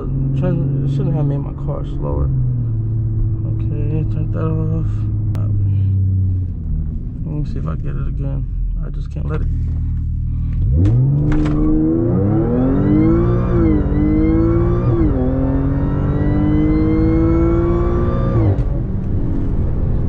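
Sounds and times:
car engine accelerating hard: 0:09.4 - 0:20.0.

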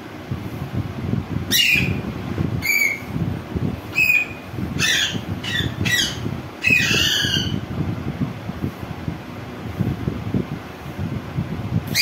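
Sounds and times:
parakeet squawking: 0:01.5 - 0:02.0, 0:02.6 - 0:03.1, 0:03.9 - 0:07.6.

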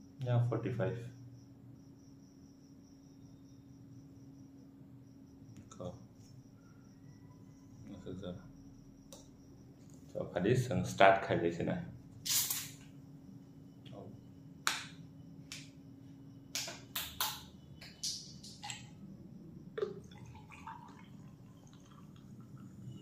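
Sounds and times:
soda pouring over ice: 0:19.8 - 0:23.0.

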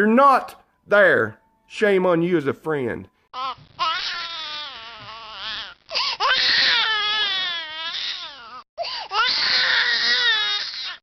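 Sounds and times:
infant crying: 0:03.4 - 0:11.0.

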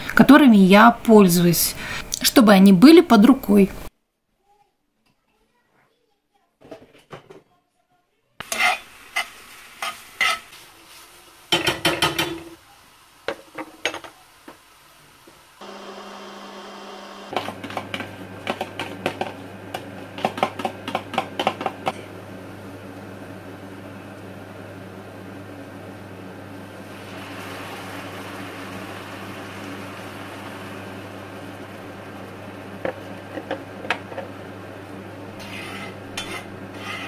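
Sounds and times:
low machine hum: 0:15.6 - 0:17.3, 0:20.9 - 0:36.9.

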